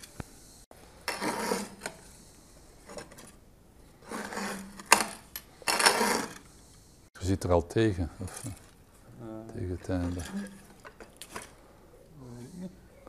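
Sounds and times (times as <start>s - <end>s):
reamer scraping into wood: 1.0s - 3.3s, 3.9s - 6.7s.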